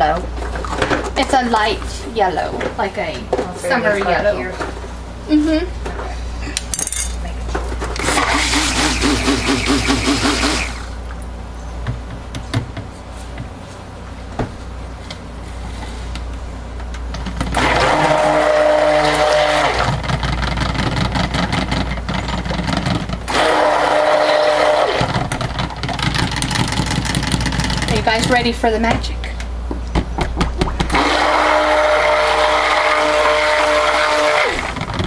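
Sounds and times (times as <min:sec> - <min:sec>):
stick blender whining: 0:08.0 - 0:11.0, 0:17.4 - 0:28.0, 0:30.8 - 0:35.0.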